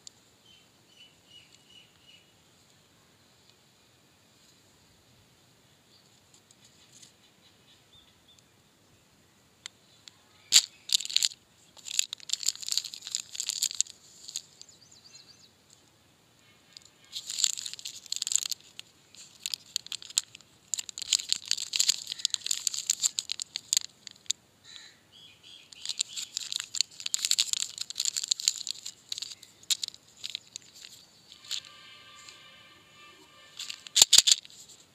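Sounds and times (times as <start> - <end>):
plastic candy wrapper crinkling: 10.4 - 14.7, 16.7 - 24.4, 25.7 - 34.9.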